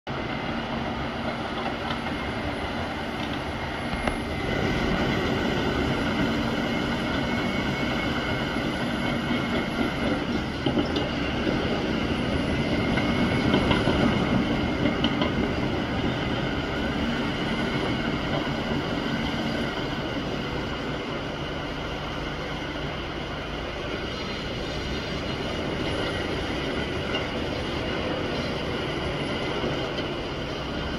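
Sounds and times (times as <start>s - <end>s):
bulldozer tracks clattering: 3.1s - 20.8s.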